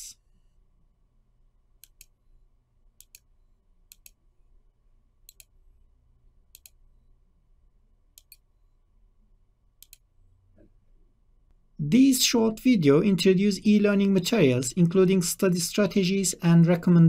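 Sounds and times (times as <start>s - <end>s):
computer mouse clicks: 1.8s - 2.2s, 3.0s - 3.3s, 3.9s - 4.2s, 5.2s - 5.6s, 6.5s - 6.8s, 8.1s - 8.5s, 9.8s - 10.7s.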